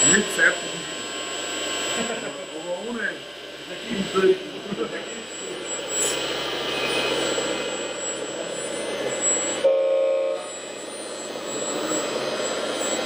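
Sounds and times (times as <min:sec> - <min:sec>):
whirring model machines: 0:00.0 - 0:09.6, 0:10.4 - 0:13.0
short pitched tone: 0:06.8 - 0:12.2.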